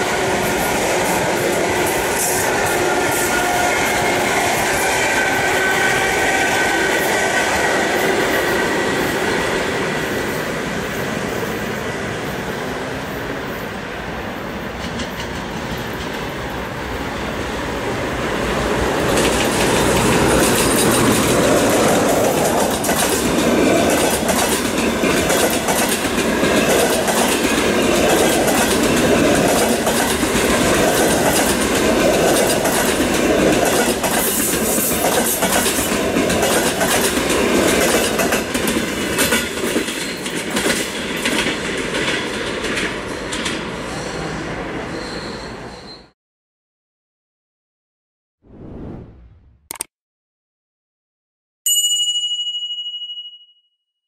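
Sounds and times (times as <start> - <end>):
train rumbling past: 0.0 - 45.9
wheels clacking over rail joints: 19.0 - 43.7.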